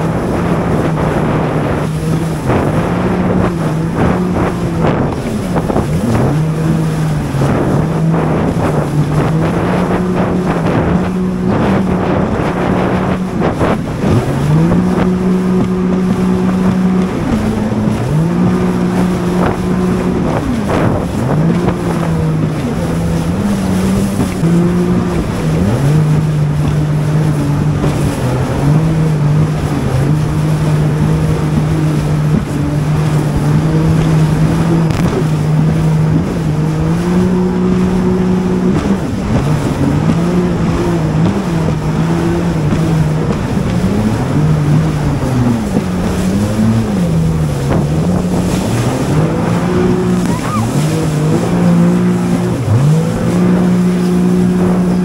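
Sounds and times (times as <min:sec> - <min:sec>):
jet ski engine revving: 0:00.0 - 0:55.0
wind on microphone: 0:00.0 - 0:55.0.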